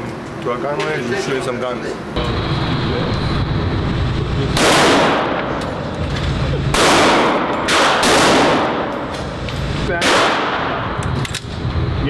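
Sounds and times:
gunshots echoing indoors: 0:04.5 - 0:05.8, 0:06.7 - 0:11.4.

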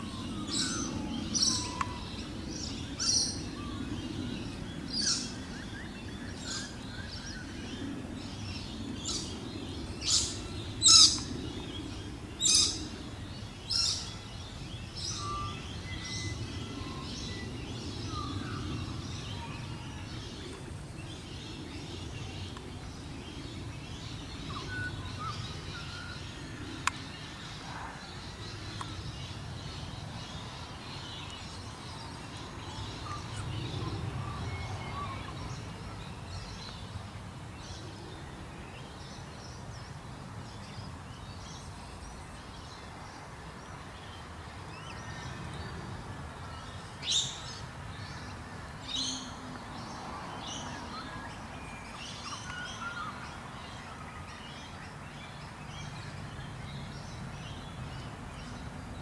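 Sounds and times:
birds chirping: 0:00.0 - 0:36.9.

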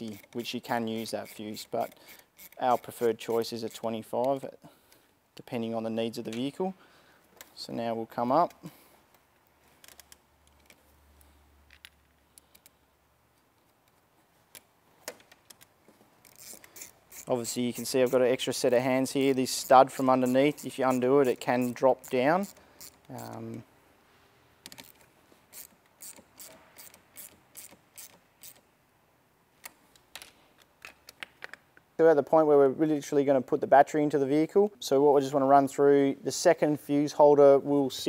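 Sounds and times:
hand ratchet clicking: 0:00.0 - 0:04.4, 0:16.2 - 0:18.4, 0:19.0 - 0:23.6, 0:24.7 - 0:28.7
small metal hardware clicking: 0:01.0 - 0:03.1, 0:24.6 - 0:28.6.

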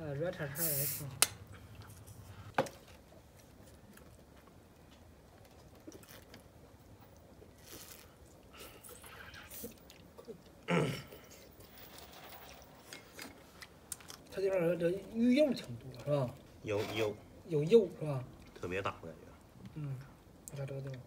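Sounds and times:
people chewing: 0:03.6 - 0:11.6, 0:13.0 - 0:16.5.

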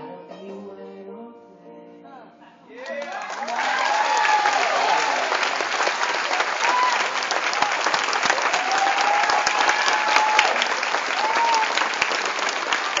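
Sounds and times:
audience applauding: 0:02.8 - 0:13.0.

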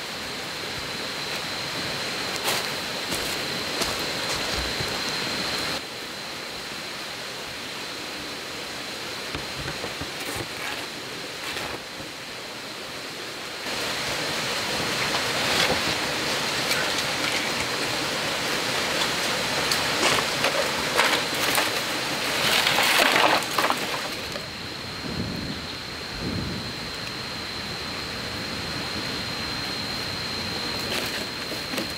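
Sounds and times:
high-pitched hum: 0:00.0 - 0:31.9
bamboo poles clattering: 0:19.8 - 0:24.4.

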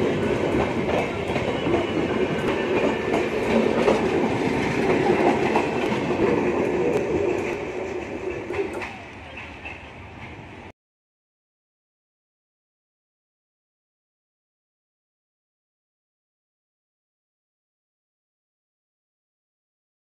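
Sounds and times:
train wheels rumbling on rails: 0:00.0 - 0:10.7.

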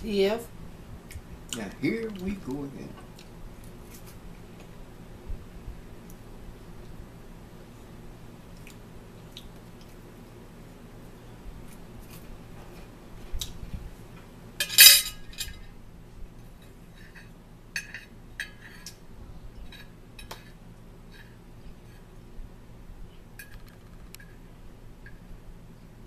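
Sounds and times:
forks clinking on plates: 0:14.6 - 0:15.6.

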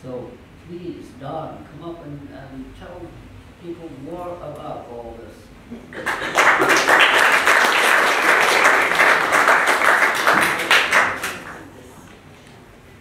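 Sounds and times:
audience applauding: 0:05.9 - 0:11.7.

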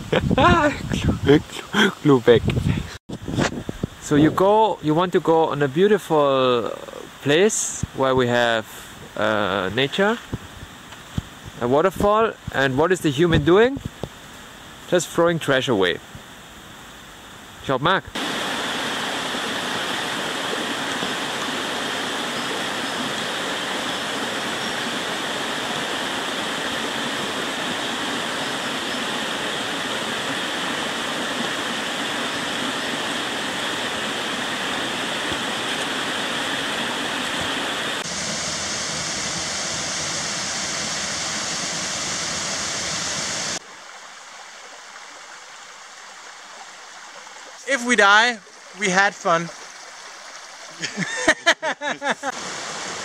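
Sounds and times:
stream flowing over stones: 0:18.2 - 0:51.6, 0:52.3 - 0:53.0.

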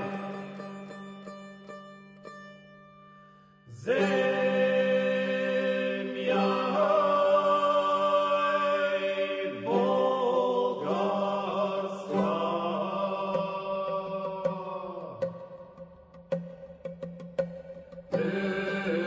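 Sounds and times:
chant-like held notes: 0:00.0 - 0:01.0, 0:03.7 - 0:15.5, 0:18.1 - 0:19.0.

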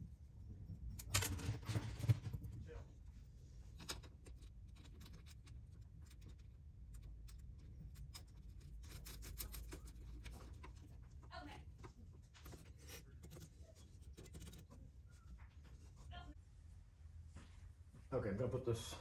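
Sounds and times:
small parts clicking and rubbing: 0:03.6 - 0:14.8.

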